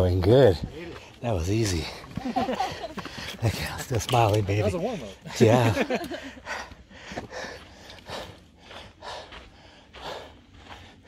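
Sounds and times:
person breathing hard: 6.2 - 11.0.

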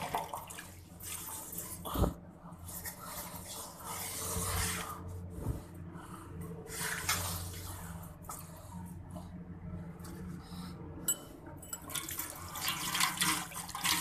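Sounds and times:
water sloshing in a sink: 0.0 - 5.0, 6.7 - 8.5, 11.6 - 14.0
low steady hum: 0.0 - 14.0
water draining: 11.7 - 14.0.

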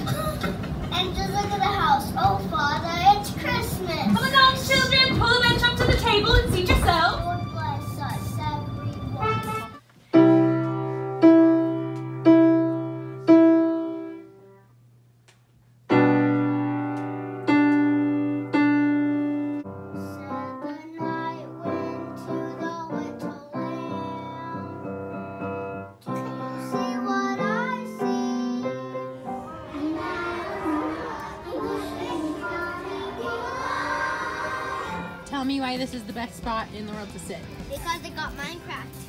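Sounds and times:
piano chords: 0.0 - 14.6, 15.9 - 39.0
child singing: 20.0 - 24.9, 26.1 - 35.0.

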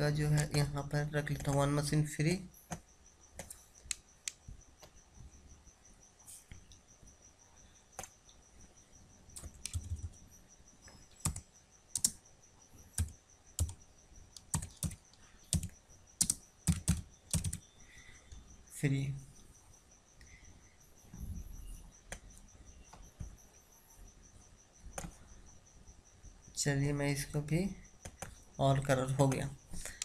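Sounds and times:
faint high whine: 0.0 - 30.0
typing on a keyboard: 0.2 - 1.8, 9.4 - 10.2, 11.2 - 12.2, 12.9 - 13.8, 14.4 - 17.6.

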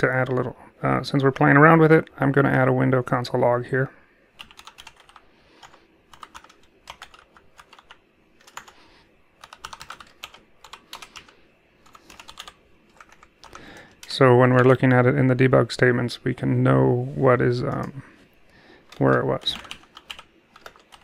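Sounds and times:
typing on computer keyboard: 4.4 - 8.8, 9.4 - 14.7, 18.9 - 21.0.

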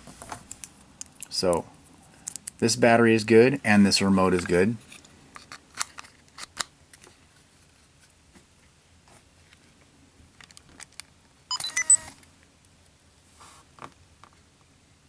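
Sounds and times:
camera electronic beeps: 11.5 - 12.2.

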